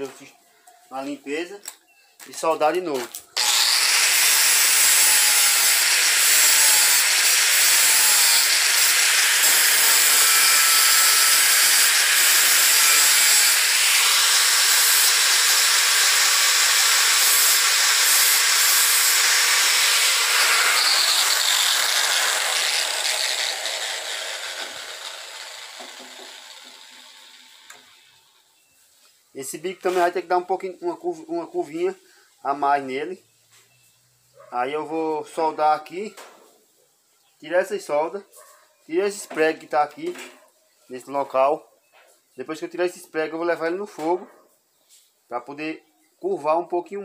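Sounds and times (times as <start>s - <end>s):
angle grinder grinding steel: 3.0s - 28.5s.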